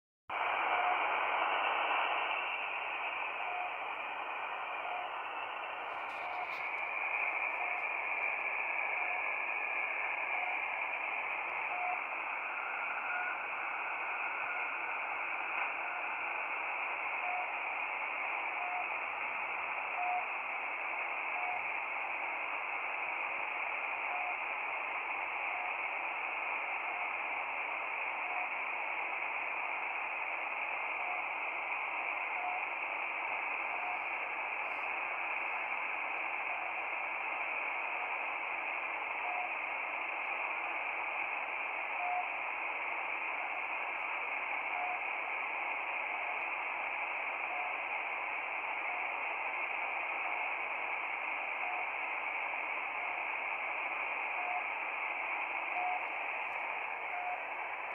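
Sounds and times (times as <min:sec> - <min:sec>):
radio static hiss: 0:00.3 - 0:57.9
short radio beeps: 0:11.5 - 0:16.2, 0:55.6 - 0:57.7.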